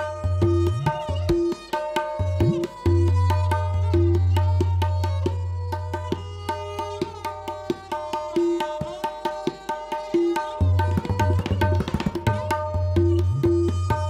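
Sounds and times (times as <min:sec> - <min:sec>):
deep ringing tabla bass stroke: 0:00.0 - 0:14.0
sharp tabla strokes: 0:00.0 - 0:14.0.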